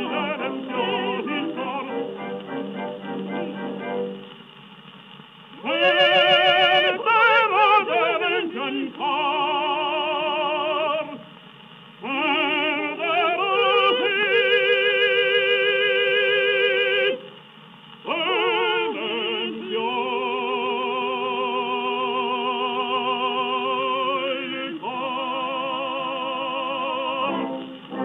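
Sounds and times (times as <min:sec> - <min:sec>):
operatic singing: 0:00.0 - 0:04.2, 0:05.6 - 0:11.2, 0:12.0 - 0:17.3, 0:18.0 - 0:28.0
soft accompaniment: 0:00.0 - 0:04.6, 0:24.0 - 0:28.0.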